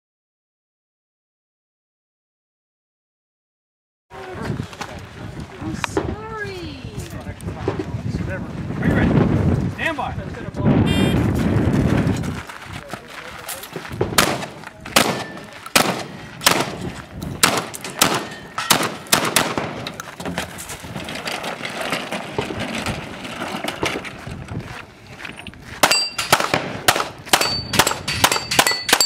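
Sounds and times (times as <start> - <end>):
gunshots: 14.0 - 20.0, 25.8 - 29.0
metal targets ringing: 15.0 - 19.9, 25.8 - 29.0.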